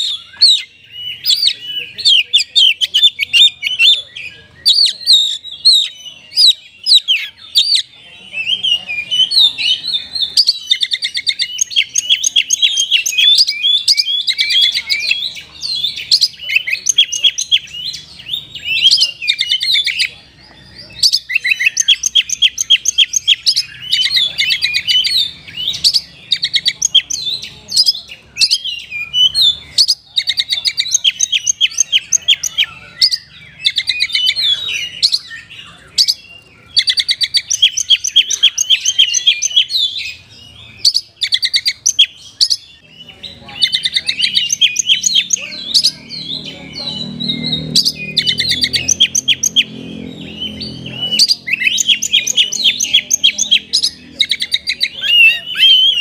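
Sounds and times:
magpie-robin singing: 0:00.0 - 0:56.0.

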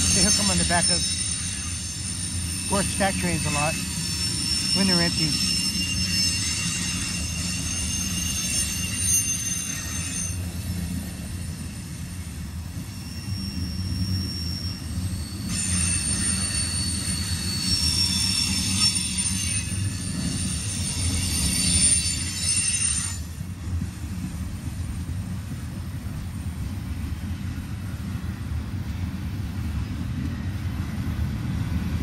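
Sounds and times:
high-pitched wheel squeal: 0:00.0 - 0:23.4
train wheels rumbling on rails: 0:00.0 - 0:32.0.

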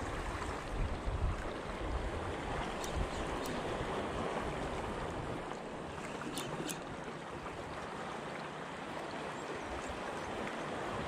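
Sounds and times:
sea water washing: 0:00.0 - 0:11.0
wind: 0:00.0 - 0:11.0
faint sharp ticks: 0:02.8 - 0:03.6, 0:06.2 - 0:06.9.

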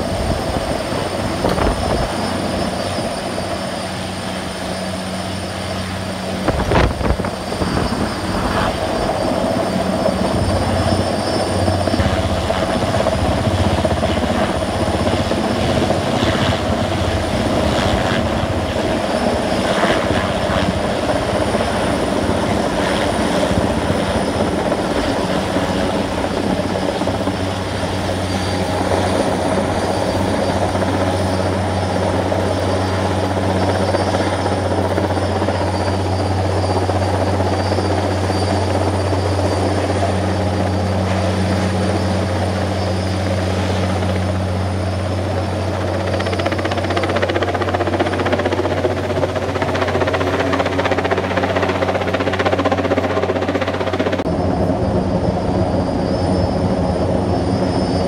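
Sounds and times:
helicopter hovering overhead: 0:00.0 - 0:58.0.

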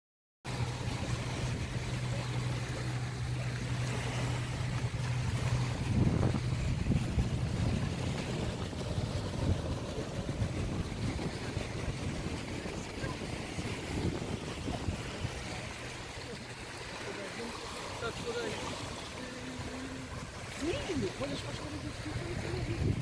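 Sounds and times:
low steady hum: 0:00.5 - 0:23.0
small waves lapping on rocks: 0:00.5 - 0:23.0
wind on microphone: 0:03.4 - 0:16.4, 0:19.6 - 0:23.0.

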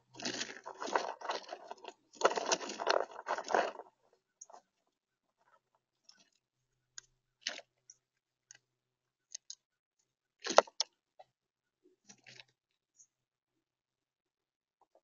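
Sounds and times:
squirrel digging through acorns: 0:00.1 - 0:03.9.

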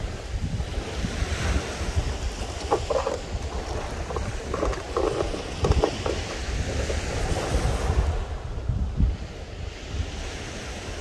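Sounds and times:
wind buffeting microphone: 0:00.0 - 0:11.0
small waves breaking on sand: 0:06.3 - 0:11.0.

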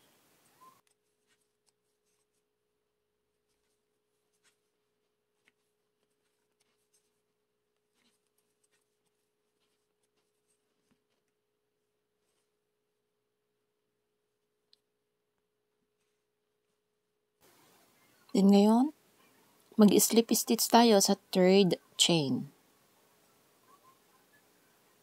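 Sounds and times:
faint steady tone: 0:00.0 - 0:16.3.

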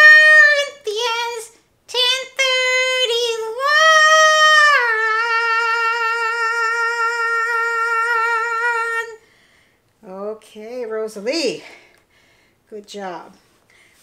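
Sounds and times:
woman singing in puppet voice: 0:00.0 - 0:09.2.

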